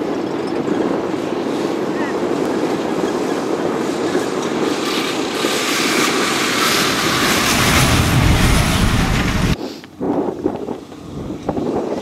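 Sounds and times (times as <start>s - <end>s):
tyres rushing on sand: 1.2s - 9.6s
truck diesel engine running hard: 5.2s - 9.6s.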